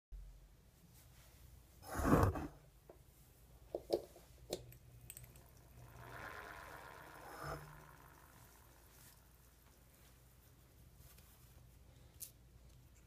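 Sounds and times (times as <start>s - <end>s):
low hum: 4.6s - 11.0s
siren rising tone: 5.4s - 9.8s.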